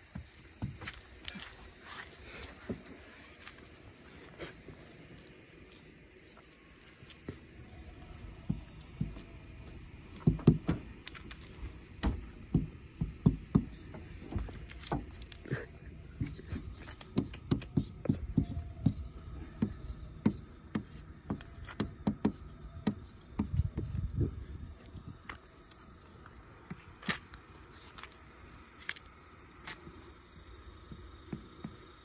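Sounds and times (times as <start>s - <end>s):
irregular knocks and thumps: 10.1s - 11.0s, 12.0s - 15.2s.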